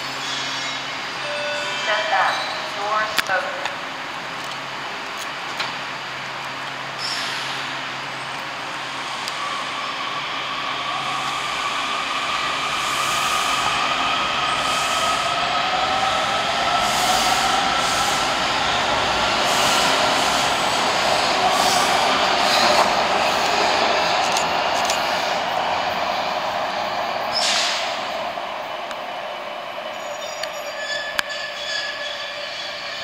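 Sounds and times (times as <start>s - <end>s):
subway train motor whine: 0.0s - 31.4s
rail noise: 0.0s - 33.0s.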